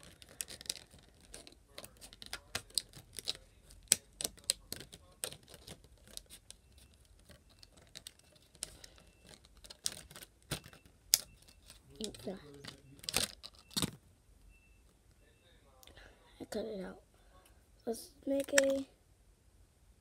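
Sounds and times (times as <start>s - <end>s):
scissors cutting plastic: 0.0s - 14.0s.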